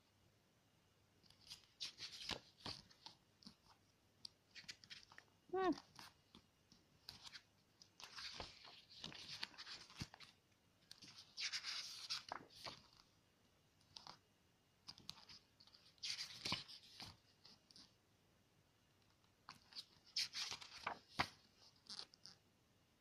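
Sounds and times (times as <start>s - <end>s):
small page clicks: 1.2s - 6.4s, 19.4s - 22.4s
book pages turning: 1.2s - 13.1s, 13.8s - 14.2s, 14.8s - 18.0s, 19.1s - 22.4s.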